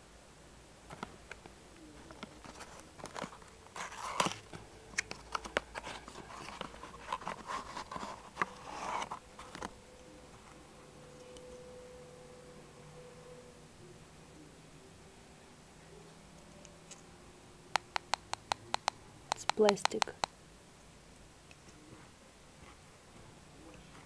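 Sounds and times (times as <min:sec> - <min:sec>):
cardboard box rustling and scraping: 0:02.5 - 0:04.5, 0:05.7 - 0:09.6
clicks and taps: 0:17.8 - 0:20.3.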